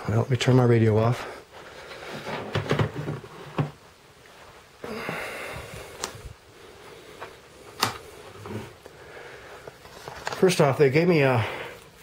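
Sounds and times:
breathy rush of noise: 0:04.4 - 0:10.1.

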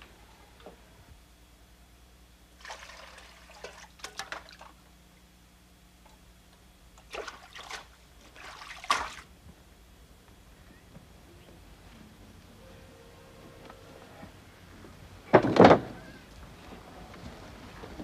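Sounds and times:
water splashing in a basin: 0:02.6 - 0:04.8, 0:07.0 - 0:09.3.

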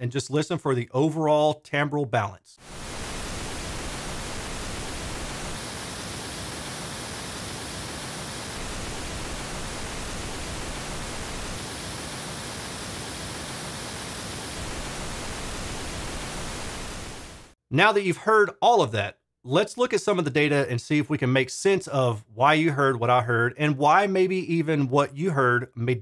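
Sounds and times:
pink noise test signal: 0:02.6 - 0:17.6.

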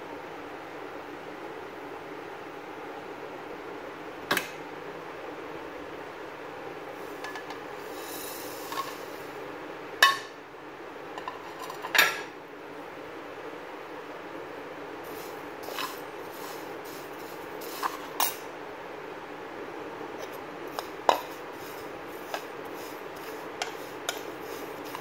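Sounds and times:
steady background hiss: 0:00.0 - 0:25.0
plate clinking on frying pan: 0:10.0 - 0:10.3.

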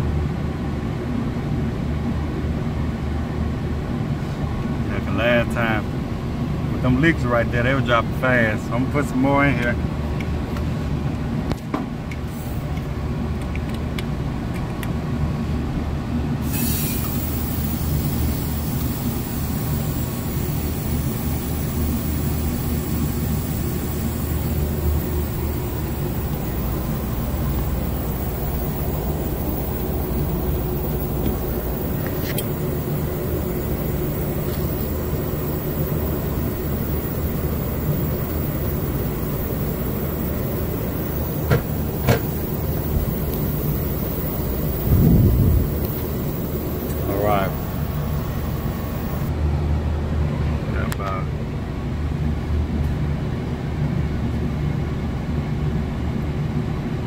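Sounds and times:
gas hissing through hoses: 0:16.4 - 0:49.3
low steady rumble: 0:17.1 - 0:57.0.

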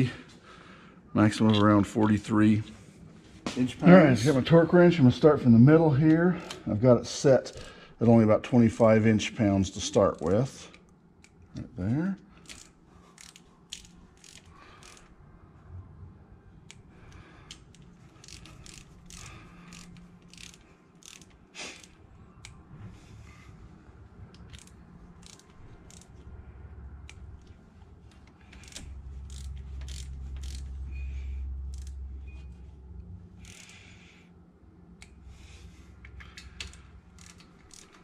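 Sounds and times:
torque wrench ratcheting: 0:09.9 - 0:11.5, 0:12.4 - 0:15.1, 0:16.7 - 0:22.6, 0:24.3 - 0:26.2, 0:28.4 - 0:32.0, 0:33.4 - 0:34.2, 0:36.1 - 0:38.0.

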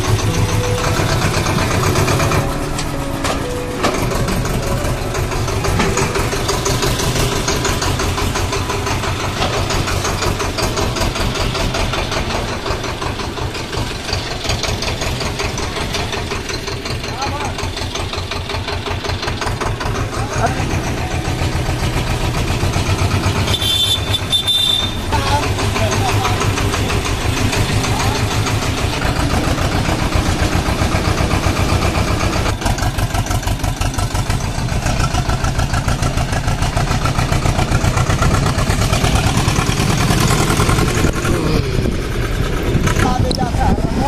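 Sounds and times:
tractor diesel engine running: 0:00.0 - 0:44.0
brief high-pitched tone: 0:00.2 - 0:07.1.

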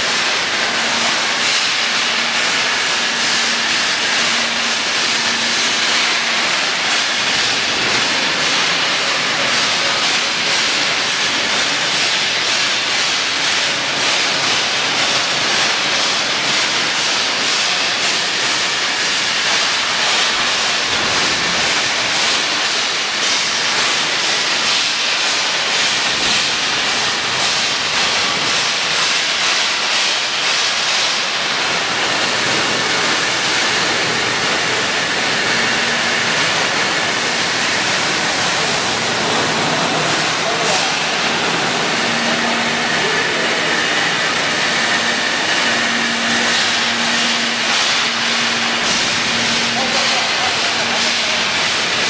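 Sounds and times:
welding arc hissing: 0:25.4 - 0:52.0.

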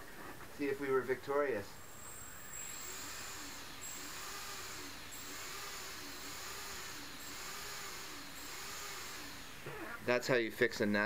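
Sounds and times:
drone motors whirring: 0:01.8 - 0:10.2.

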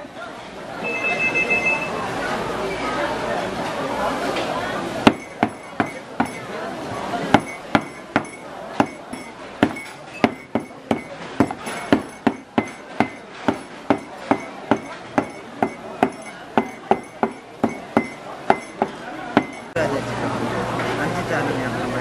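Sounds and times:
knife chopping on plastic board: 0:05.1 - 0:06.4, 0:07.3 - 0:19.6.

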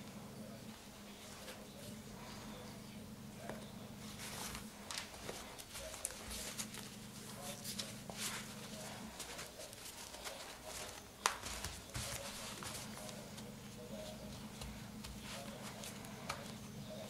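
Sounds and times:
steady low hum: 0:00.0 - 0:17.0
cloth rustling and rubbing: 0:04.0 - 0:16.7.

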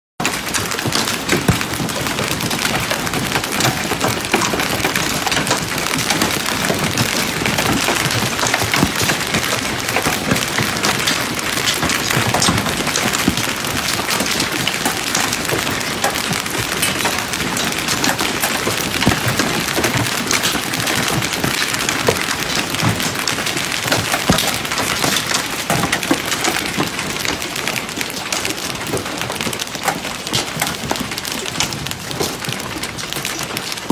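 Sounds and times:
hail knocking on hard ground: 0:00.2 - 0:33.9
hail splashing into pool water: 0:00.2 - 0:33.9.

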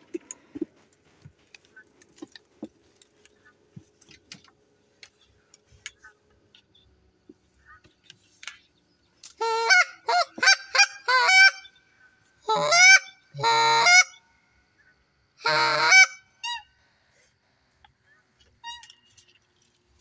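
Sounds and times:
faint clicks and rustles: 0:00.0 - 0:09.4
geese honking: 0:09.4 - 0:16.7.

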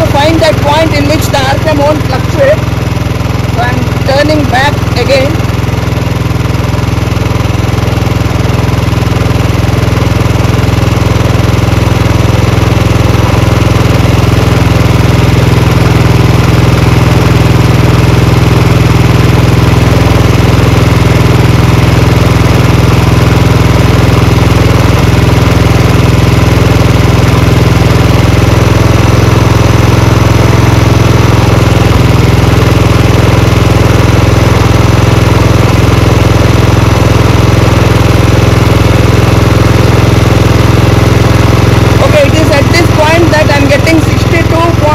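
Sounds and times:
motorcycle engine idling: 0:00.0 - 0:44.9.

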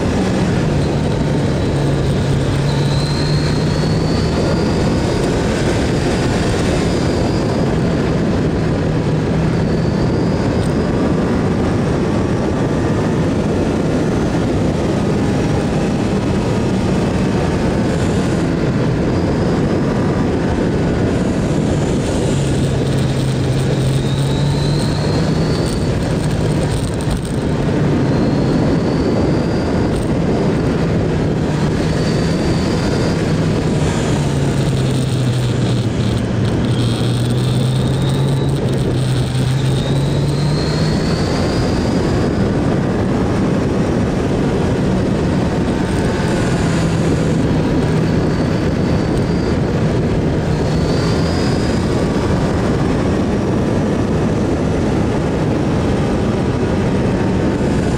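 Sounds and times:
motorcycle engine under way: 0:00.0 - 0:57.9
wind rushing over microphone: 0:00.0 - 0:57.9.

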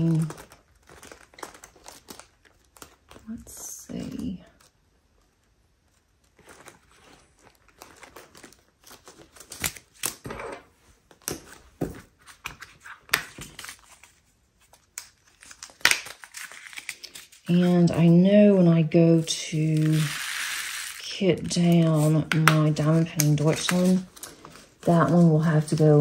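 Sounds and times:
plastic bags crinkling: 0:00.0 - 0:10.3, 0:19.7 - 0:26.0.

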